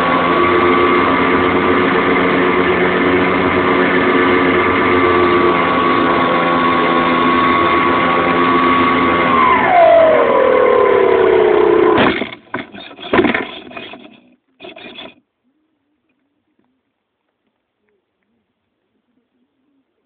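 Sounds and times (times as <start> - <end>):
model plane motor running: 0.0 - 15.2.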